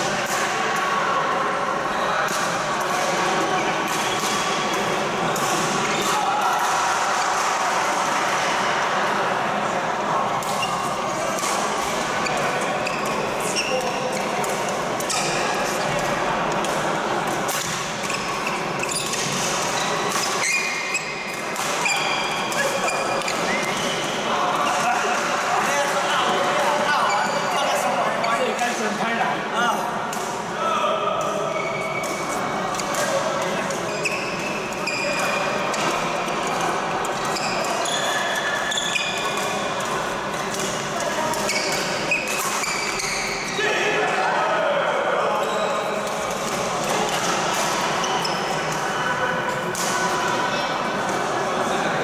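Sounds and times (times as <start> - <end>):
busy sports hall noise: 0.0 - 52.0
shoes squeaking on court floor: 3.5 - 4.7, 10.5 - 11.2, 12.2 - 16.6, 17.6 - 24.9, 26.3 - 28.6, 33.1 - 39.6, 41.2 - 43.6, 48.0 - 48.7
sneakers squeaking on court: 18.1 - 24.2, 33.9 - 36.0, 37.1 - 39.3, 41.5 - 43.6.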